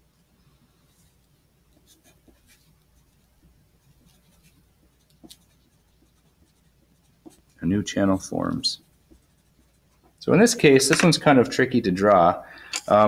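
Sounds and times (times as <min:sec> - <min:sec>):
pencil scratching on paper: 0:00.9 - 0:11.2.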